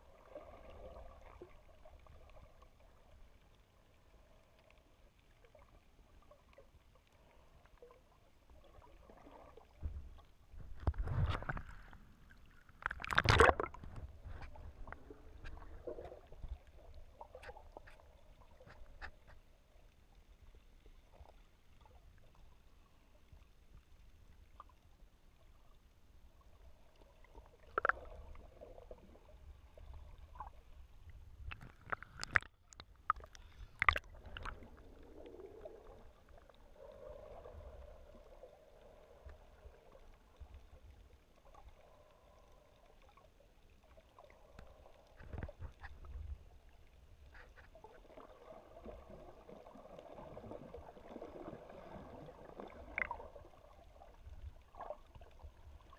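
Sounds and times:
underwater rumble and gurgling: 0.0s - 55.9s.

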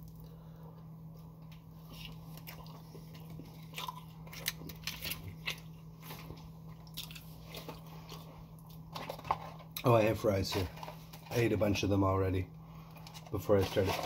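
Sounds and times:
steady low hum: 0.0s - 14.0s
person chewing food: 1.1s - 9.8s.

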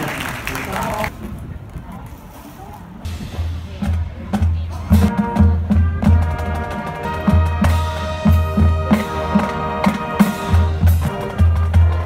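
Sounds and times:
brass holding chords: 5.0s - 12.0s.

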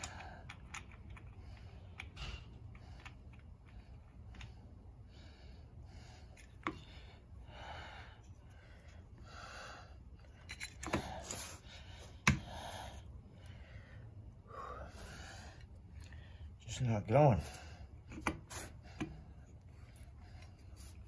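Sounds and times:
sharp clicks of metal parts: 0.0s - 4.5s, 10.3s - 11.3s
man breathing hard: 0.0s - 21.0s.

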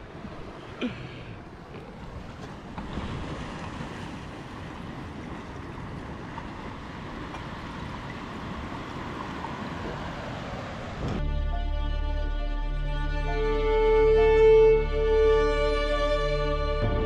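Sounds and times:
sea waves on rocky shore: 0.0s - 11.2s.

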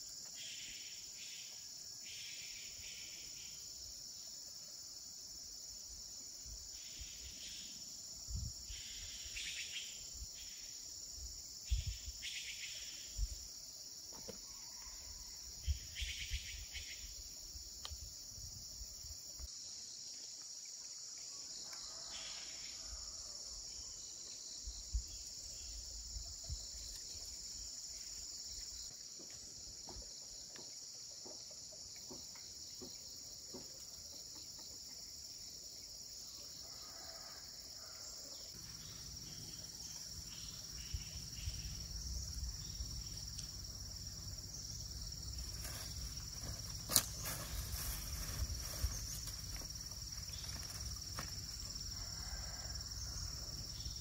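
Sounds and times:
crickets chirring: 0.0s - 54.0s
hands rustling in soil: 45.4s - 51.6s.

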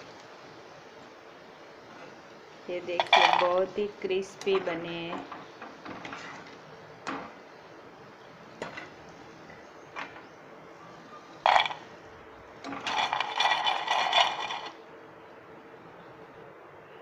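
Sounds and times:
fried pieces rattling in steel dish: 11.5s - 11.8s, 12.7s - 14.8s.

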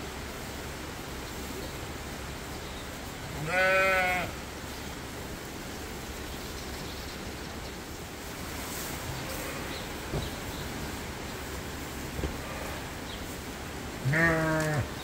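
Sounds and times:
background hiss: 0.0s - 15.0s
sheep bleating: 3.4s - 4.4s, 14.0s - 15.0s.

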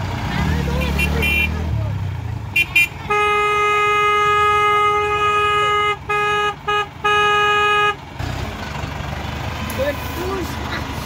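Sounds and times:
truck engine rumble: 0.0s - 11.0s
truck horn blasts: 0.8s - 1.7s, 2.5s - 8.1s.

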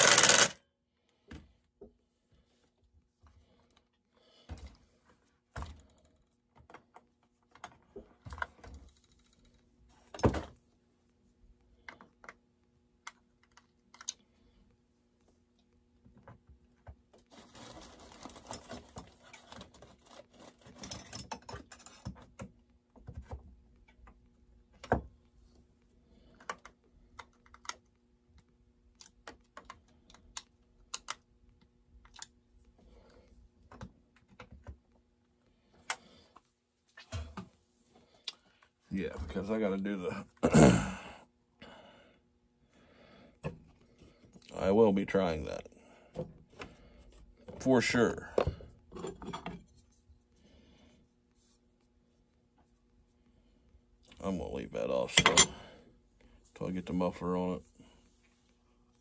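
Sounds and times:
parts clicking and knocking: 0.0s - 0.6s
rustling and scraping: 17.2s - 22.2s.

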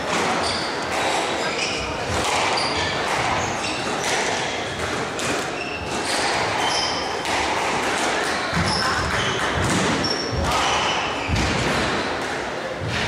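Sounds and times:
rackets striking ball: 0.0s - 13.0s
shoes squeaking on wooden floor: 0.3s - 2.0s, 5.4s - 7.1s.

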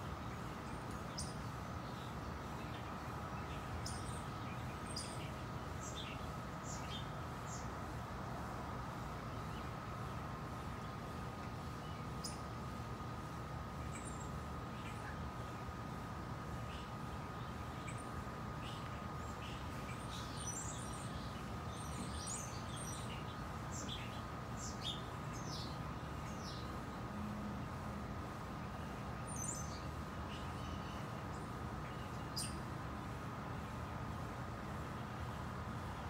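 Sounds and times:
faint steady tone: 0.0s - 36.0s
small birds chirping: 0.0s - 36.0s.

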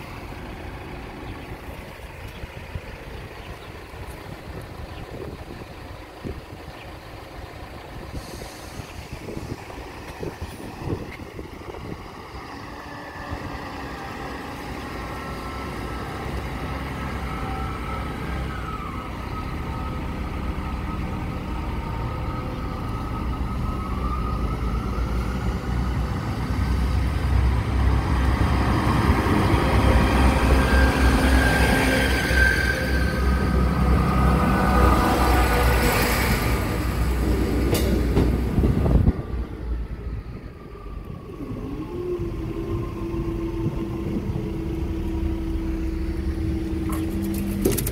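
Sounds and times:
diesel train engine: 0.0s - 47.9s
train wheels on rails: 22.8s - 40.2s.

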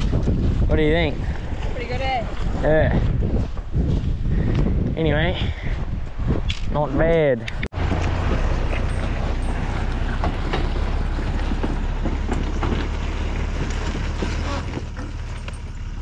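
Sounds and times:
wind buffeting microphone: 0.0s - 15.0s
vehicle engine running: 7.8s - 16.0s.

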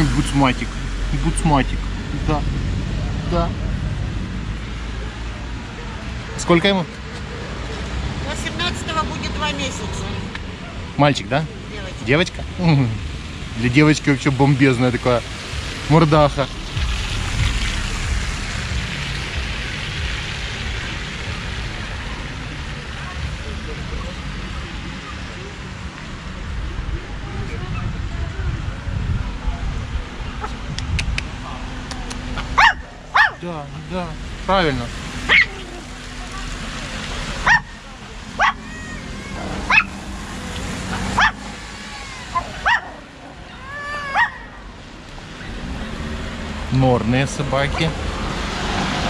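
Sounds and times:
dog barking: 32.4s - 33.4s, 35.3s - 35.6s, 37.4s - 37.8s, 38.4s - 38.7s, 39.7s - 40.0s, 40.9s - 41.5s, 42.4s - 43.1s, 44.1s - 44.5s.

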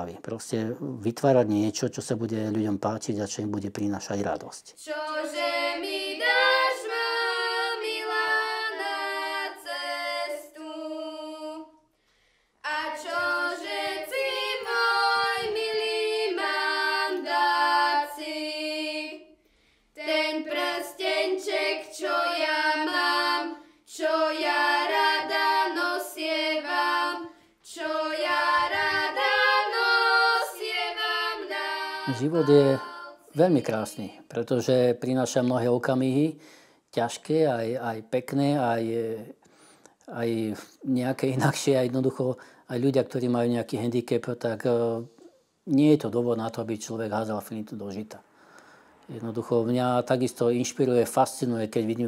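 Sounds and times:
girl singing unaccompanied: 4.8s - 11.9s, 12.6s - 19.4s, 20.0s - 34.3s.

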